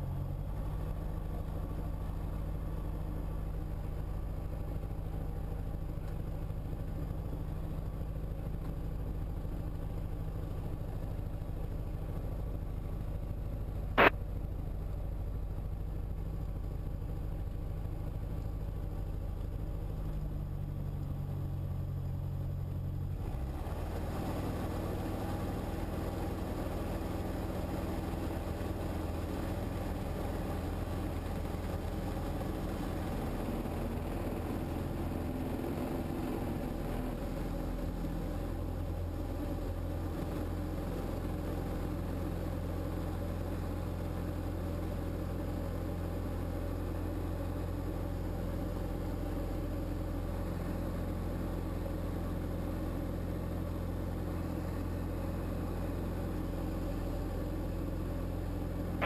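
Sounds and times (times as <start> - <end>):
light aircraft engine and propeller: 0.0 - 59.0
sharp click: 14.0 - 14.2.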